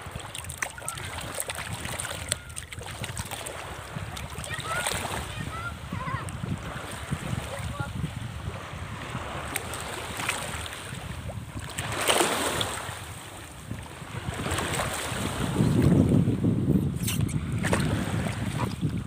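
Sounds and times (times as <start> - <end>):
water splash: 0.0 - 5.8, 9.4 - 13.2, 17.0 - 18.9
wind buffeting microphone: 0.0 - 19.0.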